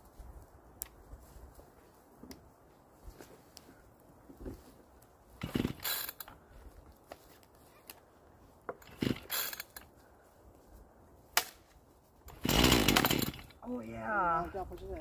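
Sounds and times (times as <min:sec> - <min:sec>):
chainsaw recoil starter whir: 0:05.4 - 0:06.3, 0:08.8 - 0:09.8, 0:12.3 - 0:13.6.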